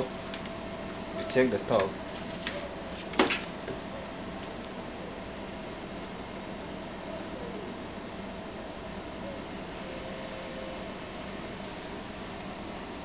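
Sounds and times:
multimeter beeping: 8.5 - 13.0.

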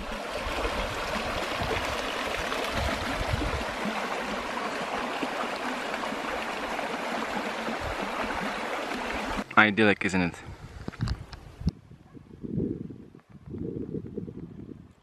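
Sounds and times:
stream running over rocks: 0.0 - 9.6.

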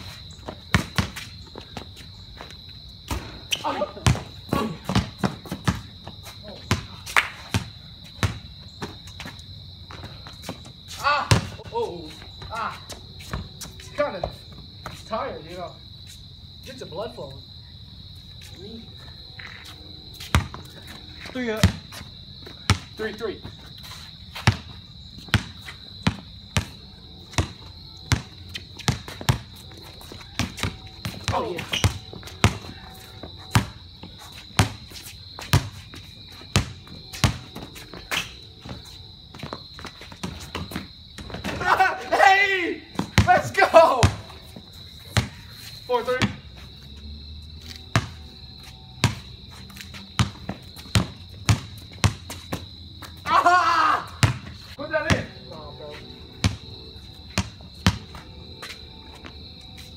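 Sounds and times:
basketball bouncing on concrete: 0.4 - 2.5, 3.1 - 11.8, 20.2 - 23.6, 24.3 - 41.8, 42.9 - 45.4, 46.1 - 46.5, 47.9 - 48.2, 49.0 - 53.2, 54.1 - 55.4, 56.4 - 59.4.

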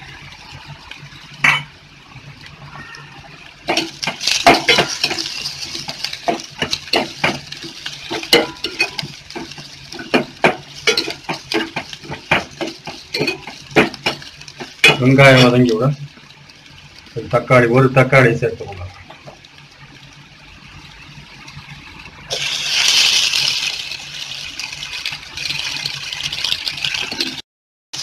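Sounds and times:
onions frying in oil: 0.0 - 27.4
ladle scraping a metal pot: 3.7 - 15.6.

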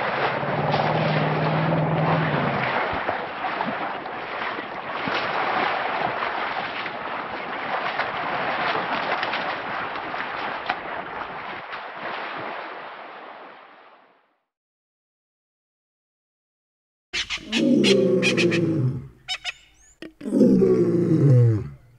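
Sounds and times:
elephants wading through water: 0.0 - 14.1.

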